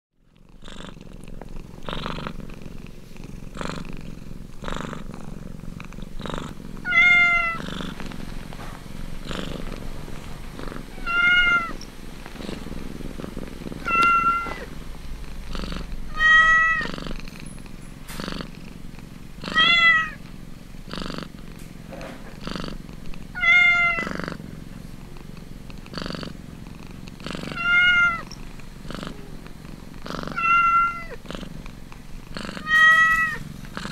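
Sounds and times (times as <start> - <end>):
cat purring: 0.2 - 33.9
cat mewing high-pitched: 27.5 - 28.2, 30.3 - 31.2, 32.6 - 33.4.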